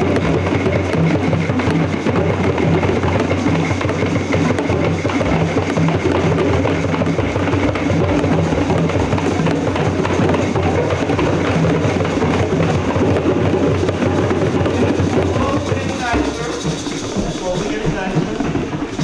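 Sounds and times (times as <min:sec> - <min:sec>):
group djembe drumming: 0:00.0 - 0:19.0.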